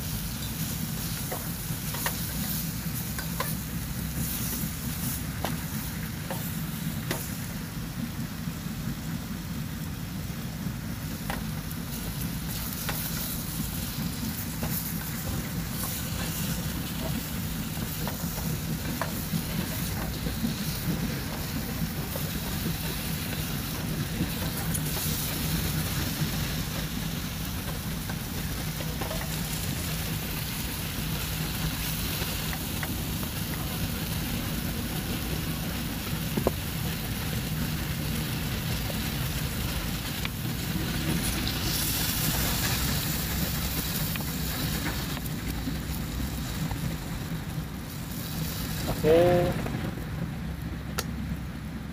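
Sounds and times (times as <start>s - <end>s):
meat sizzling in a pot: 0.0s - 9.4s, 10.2s - 49.5s.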